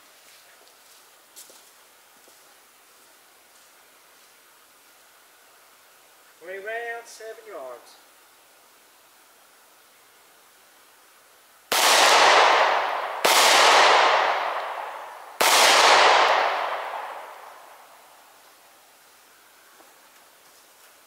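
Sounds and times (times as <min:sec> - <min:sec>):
pistol shots with echo: 0:11.7 - 0:17.8.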